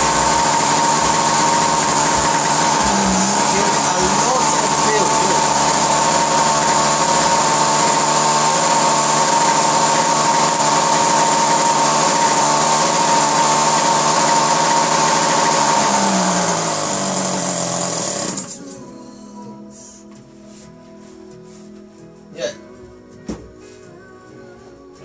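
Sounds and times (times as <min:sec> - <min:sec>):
model aircraft engine buzzing: 0:00.0 - 0:18.5.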